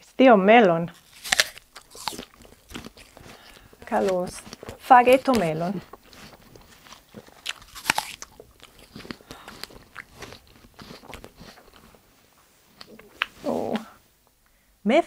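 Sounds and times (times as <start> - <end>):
biting into crisp apple: 0.9 - 12.0
chewing with crunches: 0.9 - 13.4.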